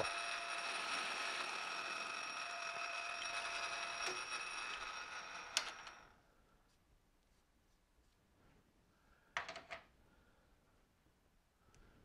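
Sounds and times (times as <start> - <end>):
metal lathe whining: 0.0 - 6.0.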